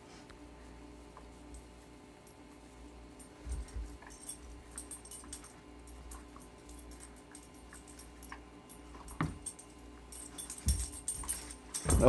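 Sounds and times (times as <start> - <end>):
metallic collar tags jingling: 3.2 - 12.0.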